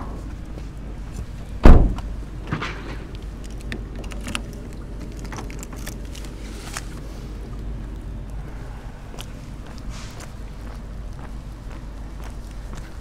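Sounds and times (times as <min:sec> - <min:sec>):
car door shutting: 0:01.6 - 0:02.7.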